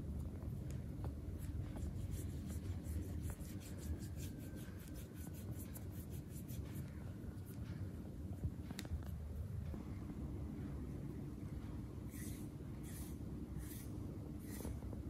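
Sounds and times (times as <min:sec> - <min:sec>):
soft skin-on-skin strokes: 0:01.4 - 0:07.6.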